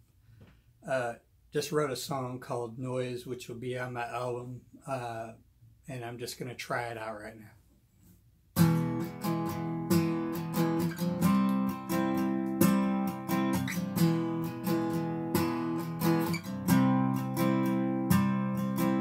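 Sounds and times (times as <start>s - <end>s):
acoustic guitar strumming: 8.6s - 19.0s.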